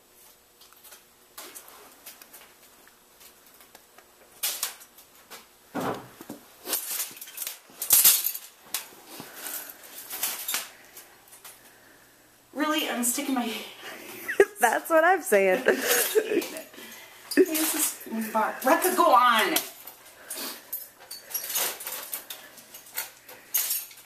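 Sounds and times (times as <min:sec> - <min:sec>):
metal trap clanking and rattling: 0:06.8 - 0:08.6, 0:20.7 - 0:24.0.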